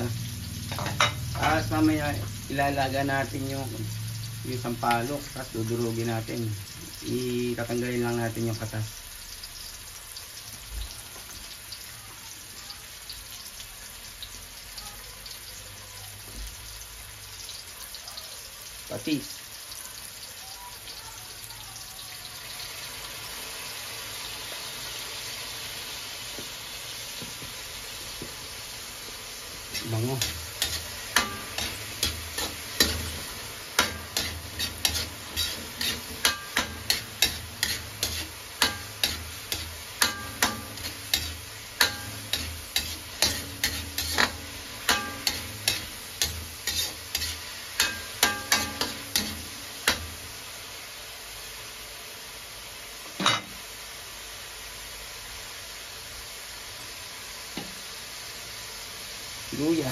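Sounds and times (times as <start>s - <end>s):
food sizzling in oil: 0.0s - 59.9s
metal spatula scraping wok: 0.6s - 1.6s, 29.6s - 50.3s.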